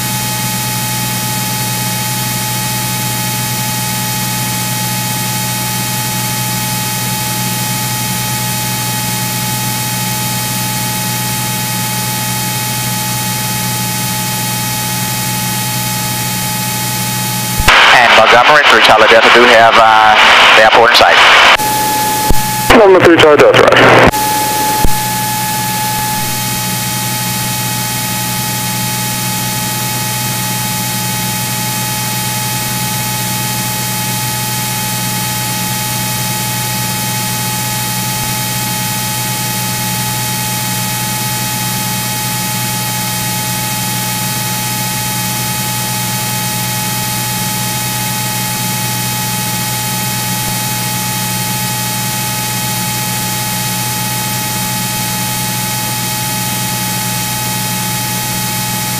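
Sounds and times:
steady radio hiss: 17.5 - 28.7
steady high-pitched tone: 20.6 - 48.7
low hum: 21.2 - 33.2.

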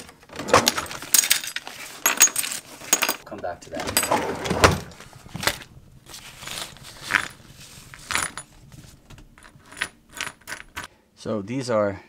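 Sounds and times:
metal nails clinking on wood: 0.9 - 3.2, 9.2 - 10.9.

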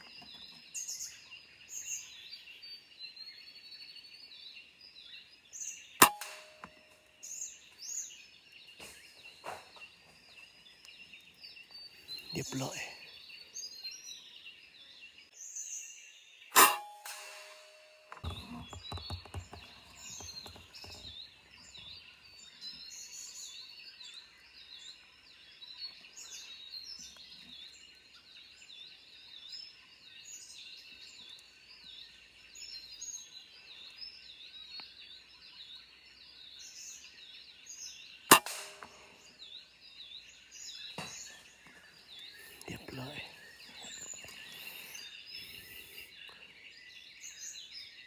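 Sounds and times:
rifle shot: 6.0 - 6.8, 16.6 - 18.4, 38.3 - 39.2.

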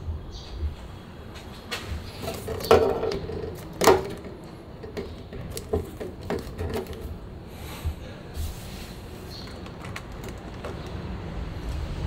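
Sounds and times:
objects knocking and clattering: 1.7 - 7.2, 9.3 - 11.2.

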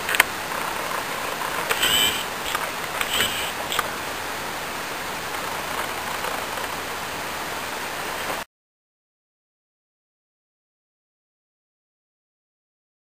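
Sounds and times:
creek water flowing: 0.0 - 8.4
sharp clicks: 1.6 - 3.9.

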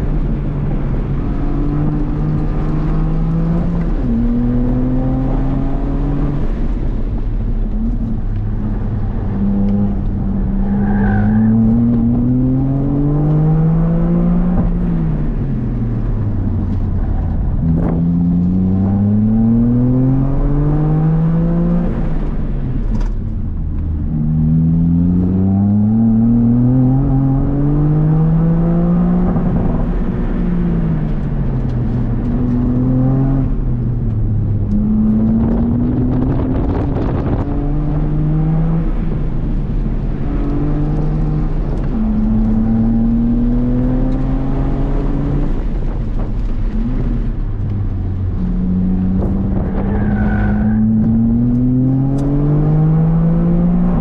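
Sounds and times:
car engine revving from cabin: 23.9 - 54.0.

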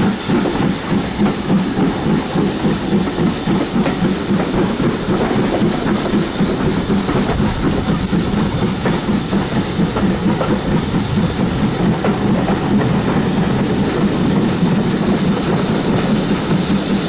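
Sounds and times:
train wheels clattering over rails: 0.0 - 17.0.

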